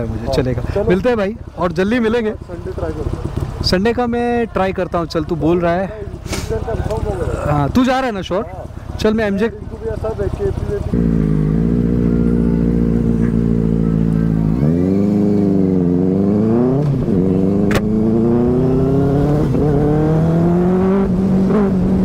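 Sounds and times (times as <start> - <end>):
motorcycle engine accelerating: 0.0 - 22.0
sharp click: 17.6 - 17.9.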